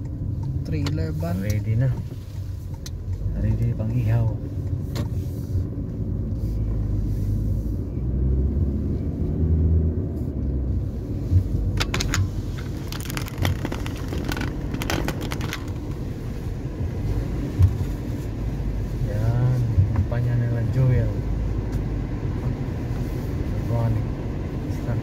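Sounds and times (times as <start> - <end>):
car road and engine rumble: 0.0 - 25.0
clicks and rattles in car cabin: 11.7 - 16.1.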